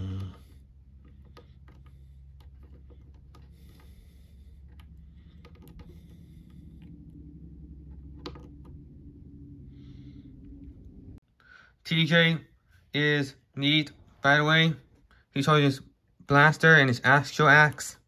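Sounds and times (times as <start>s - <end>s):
steady low hum: 0.0s - 15.4s
plastic clicks and taps: 7.9s - 8.8s.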